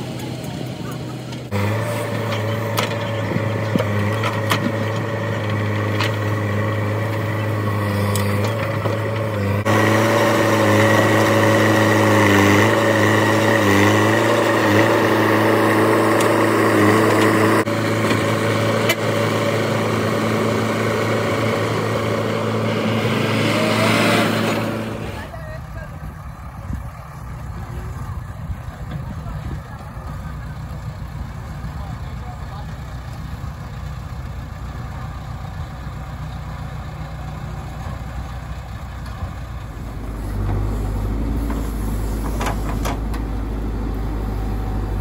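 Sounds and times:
diesel engine running: 0.0 - 45.0.

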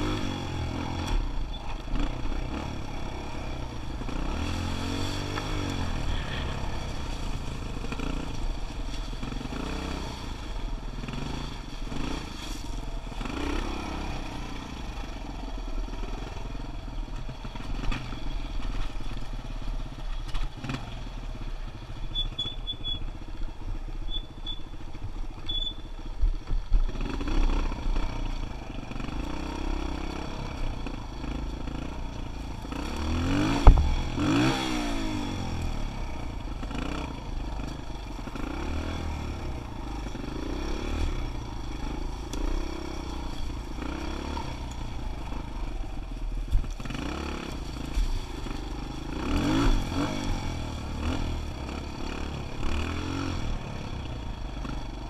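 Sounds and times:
dirt bike engine revving: 0.0 - 12.4, 13.1 - 15.1, 26.8 - 45.7, 46.6 - 55.0
sharp knock: 33.6 - 34.2.

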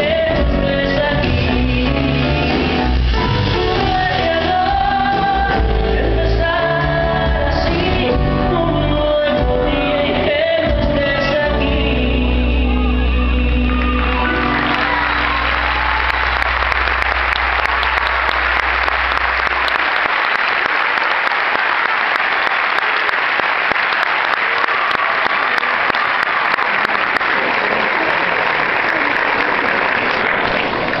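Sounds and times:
audience applauding: 13.4 - 31.0.

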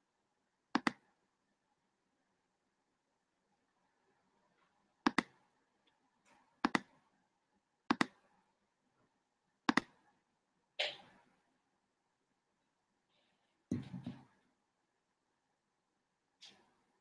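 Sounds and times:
computer mouse clicking: 0.7 - 1.1, 5.0 - 5.4, 6.6 - 7.0, 7.9 - 8.2, 9.6 - 10.0.

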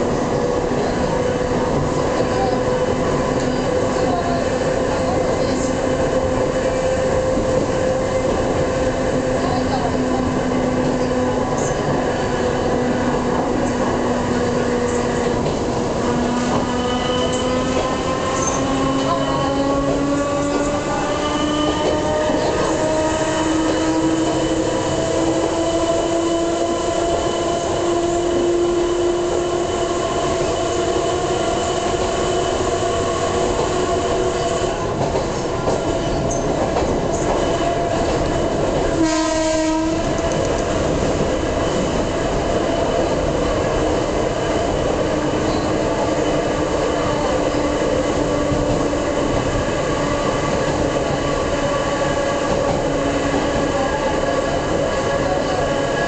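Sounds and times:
wheel and rail rumble: 0.0 - 56.0.

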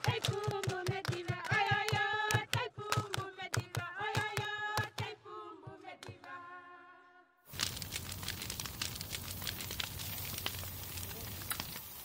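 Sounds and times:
hand clapping: 0.0 - 5.1
group singing: 0.0 - 7.3.

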